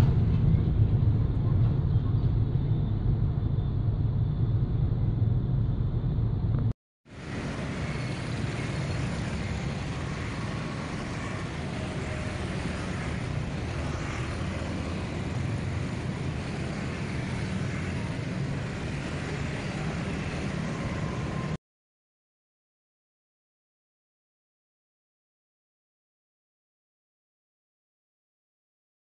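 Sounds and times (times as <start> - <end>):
low traffic rumble: 0.0 - 21.6
cars passing: 7.1 - 21.6
motorbikes passing: 7.2 - 21.6.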